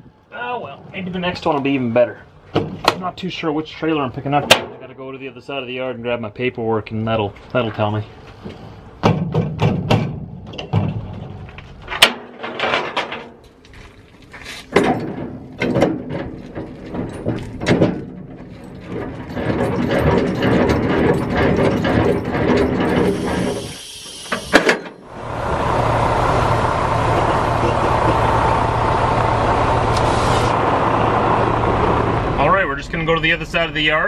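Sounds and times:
metal clanks and knocks: 9.0s - 13.5s, 14.7s - 23.4s, 24.4s - 25.1s
crank turning with rattling clatter: 14.7s - 23.6s
diesel truck engine running: 19.0s - 34.0s
short air hiss: 23.1s - 24.7s, 29.9s - 30.6s.

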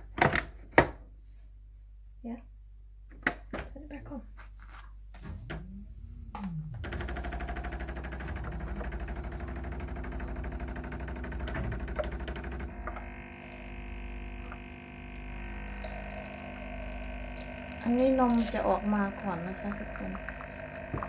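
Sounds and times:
coffee machine pump buzzing: 5.3s - 21.0s.

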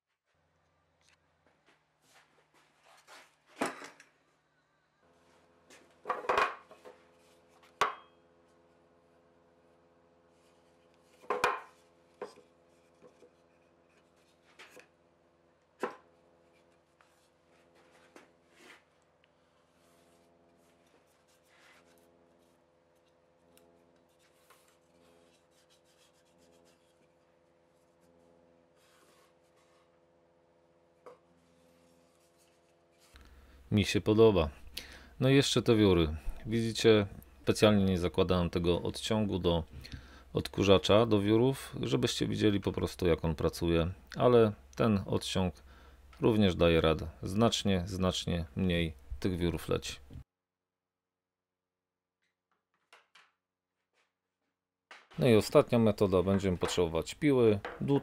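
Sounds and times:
wooden blocks knocking on metal table: 11.3s - 11.7s, 57.6s - 58.0s.

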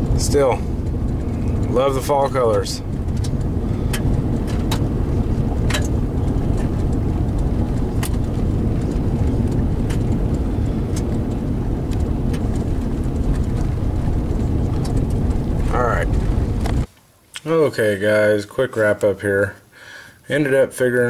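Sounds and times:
engine and tyres rumbling: 0.0s - 16.9s
light clicks and ticks: 0.1s - 15.6s.

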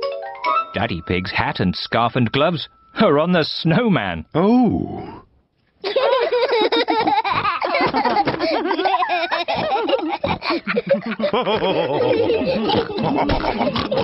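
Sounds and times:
cartoon voices laughing: 5.8s - 14.0s.

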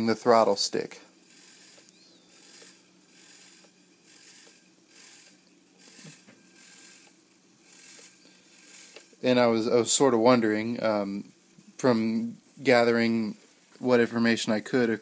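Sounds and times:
faint ratcheting clicks of control stick: 1.3s - 9.2s.

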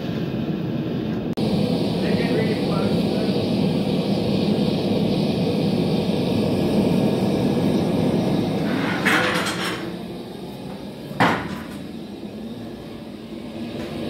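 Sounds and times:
gas burner rushing: 0.0s - 14.0s.

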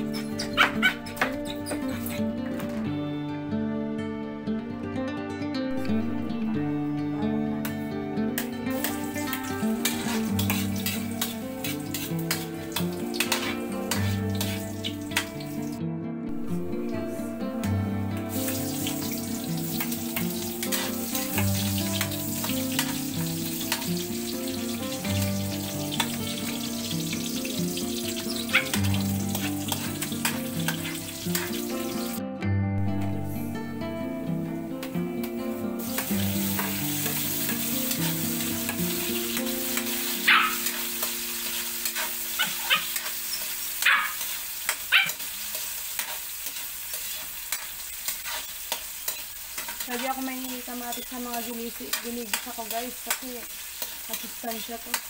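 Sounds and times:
background music: 0.0s - 43.0s
chicken sizzling in hot oil: 8.4s - 15.8s, 16.4s - 32.2s, 35.2s - 55.0s
metal ladle scraping a wok: 9.7s - 15.0s, 20.6s - 23.0s, 28.1s - 31.7s, 40.6s - 43.6s, 45.1s - 52.0s.

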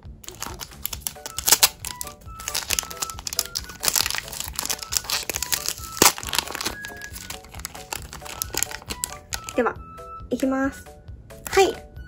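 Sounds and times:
light background music: 0.0s - 12.0s
foil bag crinkling and tearing: 0.2s - 9.6s.

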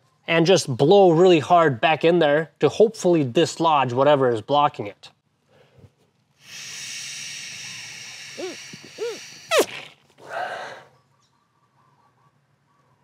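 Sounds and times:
person breathing out: 5.5s - 10.9s
air blowing into a hose: 6.4s - 10.5s.

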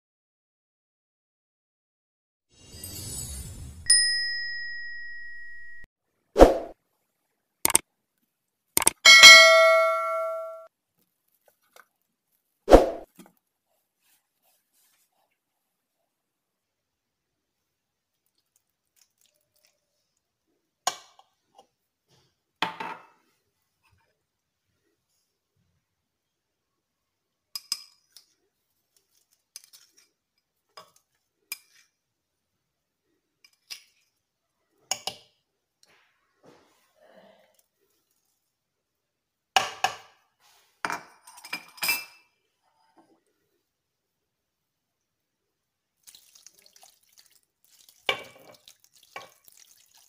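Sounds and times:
dishes and utensils clinking: 9.0s - 10.7s, 40.9s - 42.4s
kitchenware knocks with ring: 9.1s - 10.7s.

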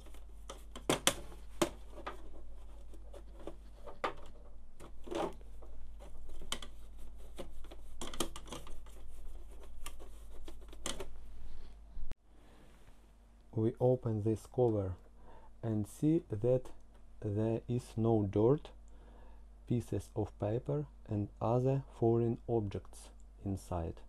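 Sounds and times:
paintbrush scrubbing plastic parts: 0.0s - 11.7s
faint steady hum: 0.0s - 24.0s.

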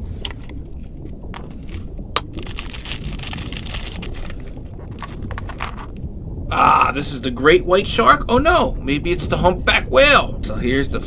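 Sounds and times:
plastic bag crinkling: 0.3s - 5.9s.

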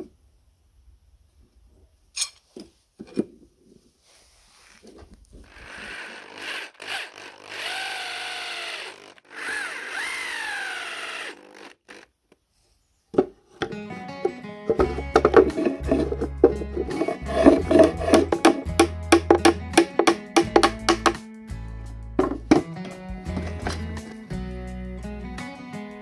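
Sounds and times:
electric drill whining: 5.4s - 12.1s
wooden knocks: 13.2s - 21.2s, 22.2s - 24.0s.

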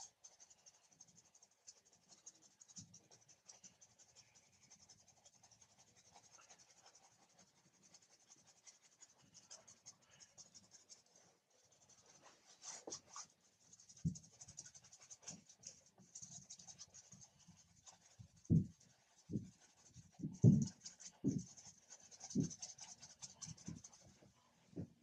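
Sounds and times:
paintbrush scrubbing canvas: 0.0s - 25.0s
dull low thumps: 20.2s - 21.4s.

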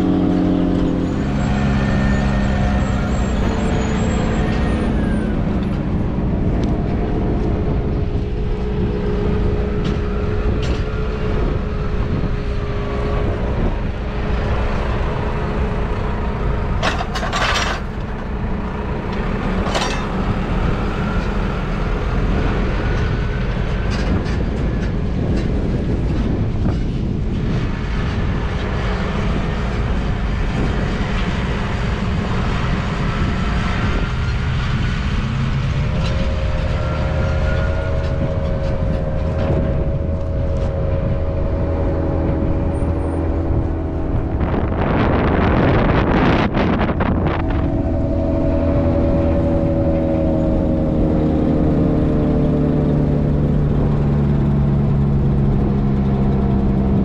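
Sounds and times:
constant whine: 0.0s - 57.0s
tractor diesel engines running: 0.0s - 57.0s
sharp metallic clanks: 19.5s - 20.5s.

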